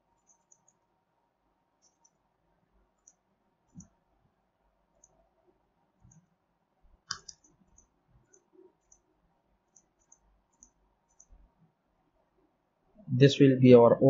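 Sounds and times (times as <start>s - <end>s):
computer mouse button clicks: 7.1s - 7.5s.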